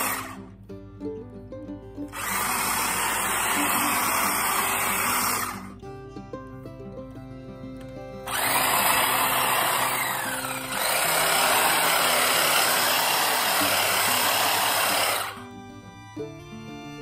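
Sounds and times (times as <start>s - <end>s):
electric hedge trimmer running: 0.0s - 0.5s, 2.1s - 5.7s, 8.2s - 15.5s
background music: 0.0s - 17.0s.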